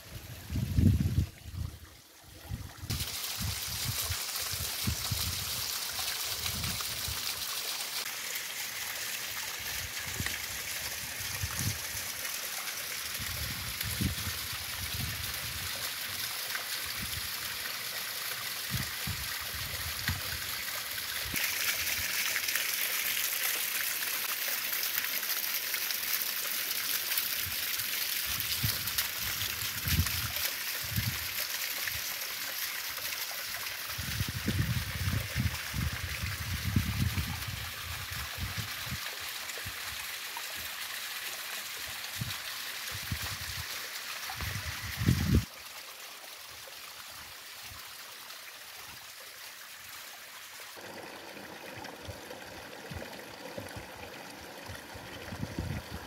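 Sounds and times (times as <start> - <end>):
stream running over rocks: 0.0 - 56.0.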